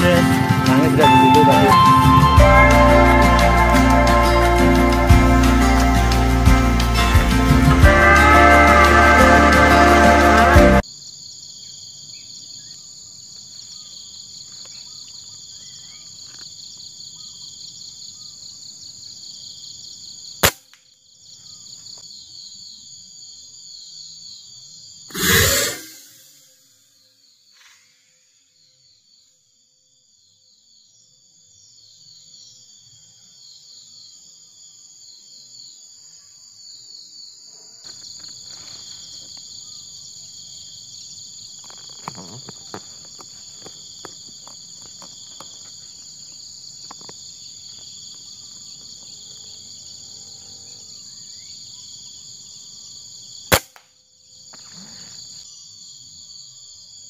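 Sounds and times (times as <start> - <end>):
insects buzzing: 0.0 - 29.4, 30.2 - 57.0
air rifle shot: 53.5 - 53.8.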